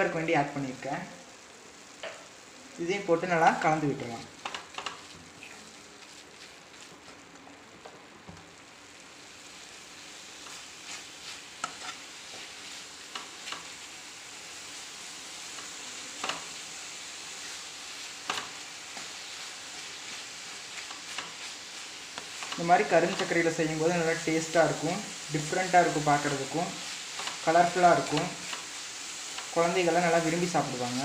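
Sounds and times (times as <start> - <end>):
mixture sizzling in pan: 0.0 - 31.0
wooden spatula scraping pan: 10.4 - 13.7.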